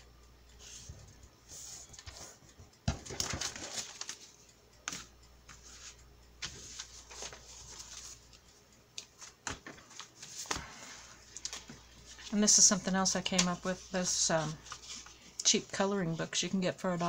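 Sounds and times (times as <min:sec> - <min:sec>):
paper rustling and crinkling: 0:02.9 - 0:04.3, 0:06.4 - 0:08.4, 0:09.0 - 0:12.7, 0:13.3 - 0:15.3.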